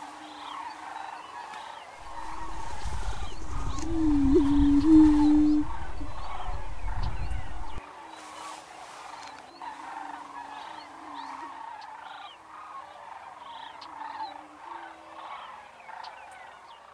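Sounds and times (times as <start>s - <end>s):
sandhill crane calls: 0.4s - 7.8s
prairie-chickens booming: 2.0s - 7.8s
short high bird calls: 2.0s - 7.8s.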